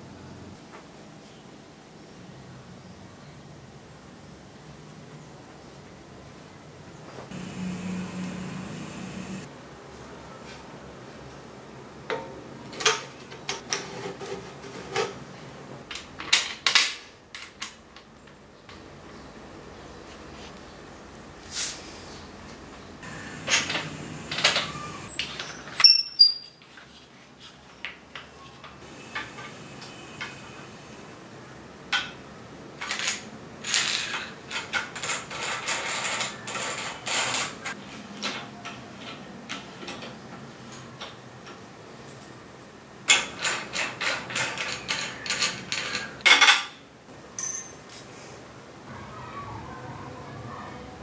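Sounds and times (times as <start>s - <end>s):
ringing metal clink: 47.4s - 47.9s.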